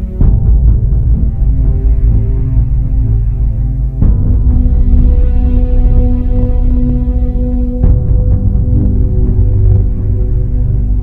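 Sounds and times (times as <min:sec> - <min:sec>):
sustained low chord: 0:00.0 - 0:11.0.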